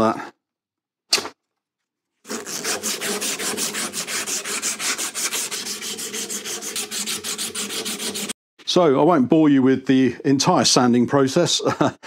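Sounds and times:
abrasive cloth rubbing metal: 2.3 - 8.3.

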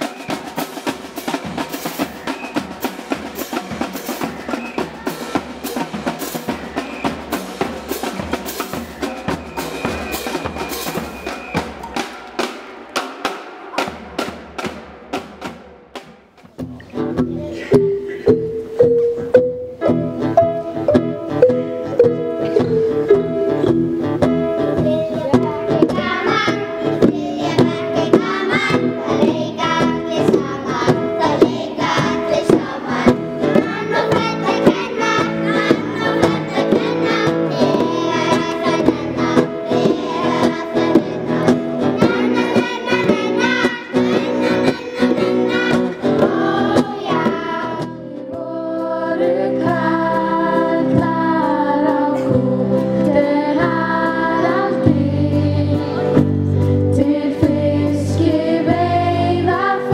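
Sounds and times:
children singing: 0.0 - 14.3, 24.8 - 56.3, 57.0 - 59.9
hand drums: 0.0 - 48.0
guitar: 16.5 - 59.9
keyboard: 16.7 - 59.9
xylophones: 16.8 - 47.9.

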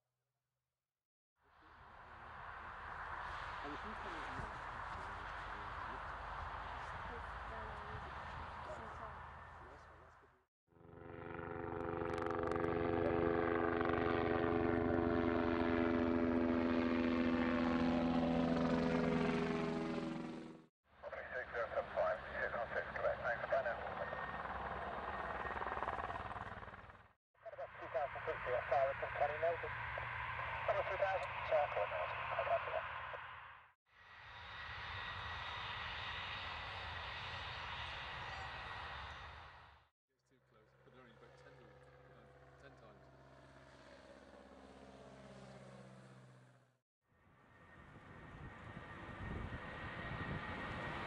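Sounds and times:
helicopter flying overhead: 2.0 - 33.5, 34.2 - 51.0
jet engines rushing with whine: 27.6 - 39.8, 47.4 - 51.0.

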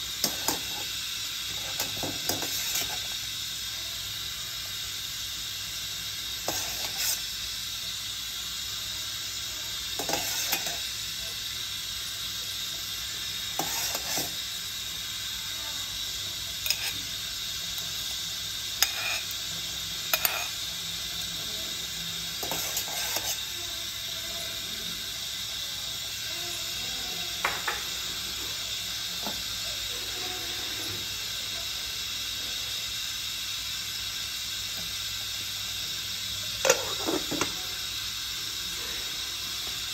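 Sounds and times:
pot boiling on gas stove: 0.0 - 39.9
utensils clinking against pot: 16.6 - 17.0, 18.8 - 19.4, 20.1 - 20.6, 22.4 - 23.4, 36.6 - 37.6.

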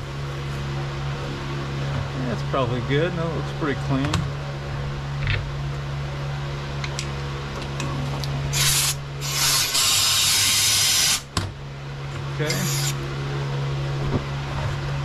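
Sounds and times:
air blow gun hissing: 8.5 - 11.3, 12.5 - 13.0.

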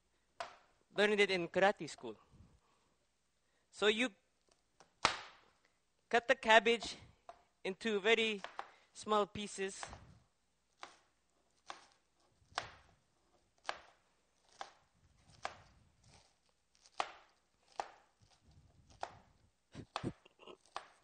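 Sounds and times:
knife chopping on cutting board: 10.8 - 12.9, 13.6 - 19.2, 19.8 - 21.0.

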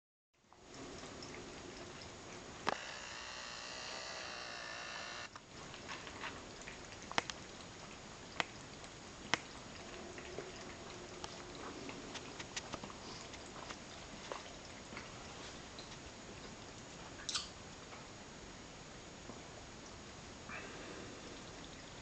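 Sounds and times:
cats lapping water: 0.5 - 2.7, 5.3 - 18.0
steady high whine: 2.6 - 5.4.

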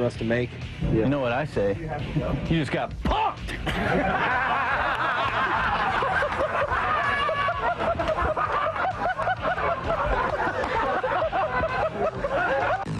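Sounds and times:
people laughing: 3.5 - 12.9.

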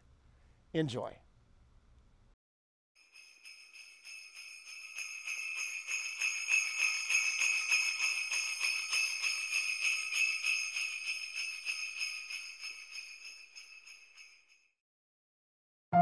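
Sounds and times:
jingle bells shaken: 3.0 - 14.7.

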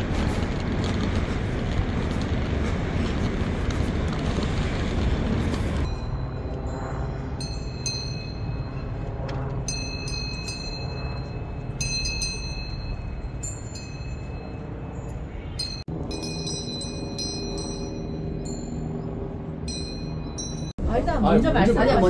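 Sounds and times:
low rushing background: 0.0 - 22.0
goat bells clanking: 15.6 - 18.8.

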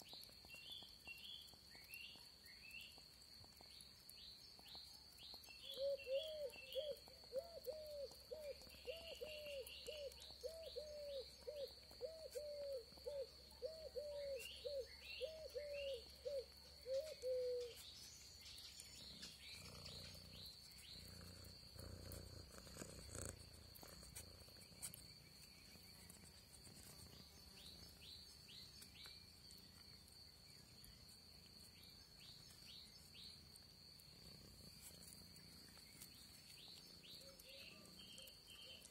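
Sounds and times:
high insect trill: 0.0 - 38.9.

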